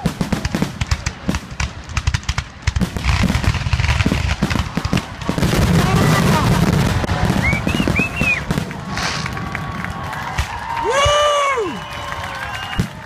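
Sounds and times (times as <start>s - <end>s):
fireworks bursting and crackling: 0.0s - 13.0s.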